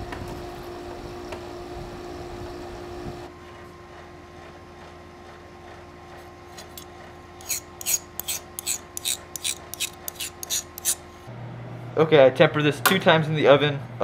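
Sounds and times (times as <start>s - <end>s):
file scraping across knife blade: 6.5s - 11.2s.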